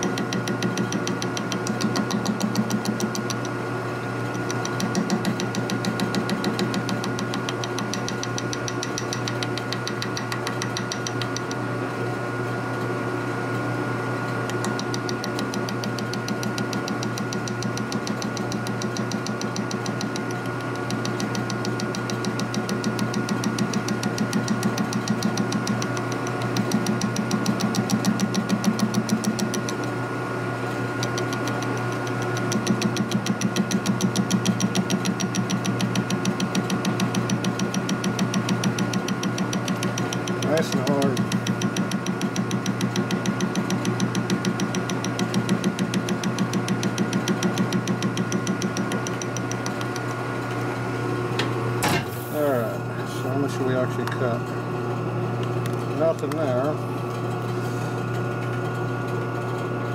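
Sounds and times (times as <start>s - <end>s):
rhythmic knocking of cutting: 0.0s - 3.6s, 4.2s - 11.6s, 14.4s - 29.9s, 30.9s - 50.2s.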